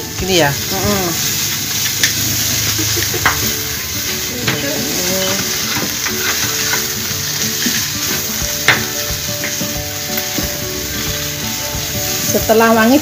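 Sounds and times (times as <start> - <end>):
paste sizzling in hot oil: 0.0 - 13.0
spatula knocking against pan: 8.6 - 9.7.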